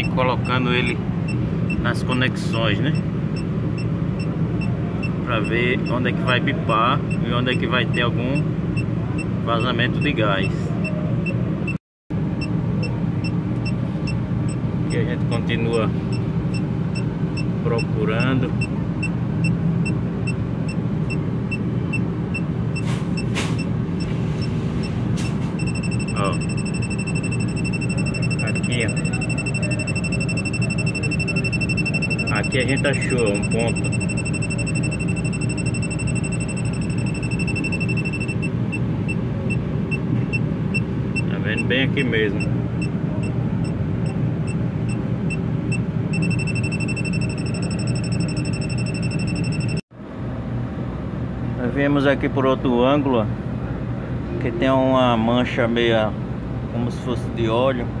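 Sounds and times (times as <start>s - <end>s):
short high beeps: 25.6s - 39.6s, 45.7s - 49.8s.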